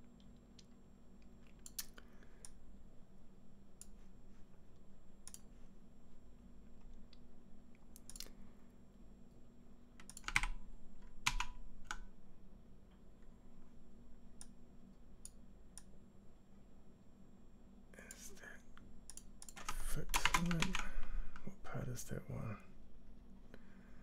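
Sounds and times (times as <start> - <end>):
low steady hum: 0.0 - 24.0
keyboard typing: 10.0 - 12.1, 19.1 - 21.5.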